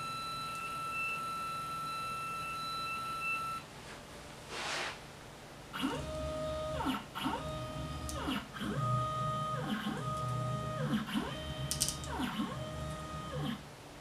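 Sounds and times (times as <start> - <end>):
stepper motors whining: 5.8 - 13.6.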